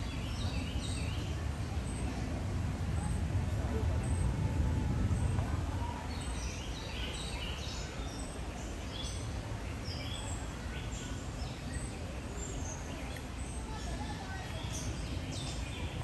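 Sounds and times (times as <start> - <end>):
low background rumble: 0.0 - 6.8.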